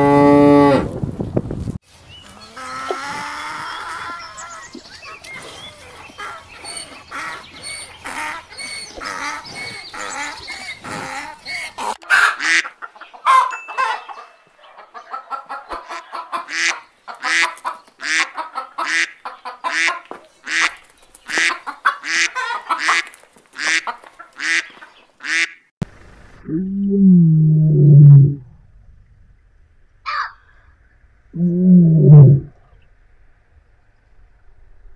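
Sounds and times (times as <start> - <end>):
ducks and chickens calling: 2.2 - 25.7, 30.1 - 30.8
loud harsh duck quacks: 24.4 - 25.6.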